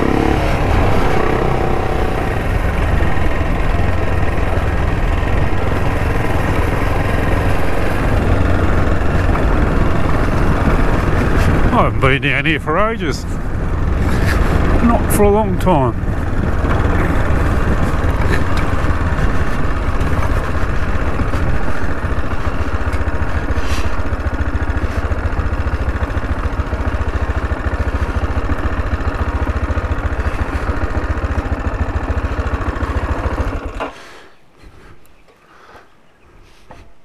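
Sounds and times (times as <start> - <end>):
motorcycle engine low throb: 0.0 - 33.9.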